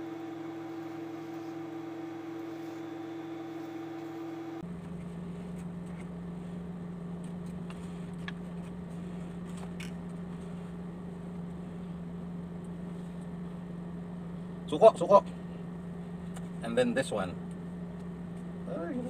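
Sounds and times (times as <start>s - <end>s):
machine hum: 0.0s - 14.7s.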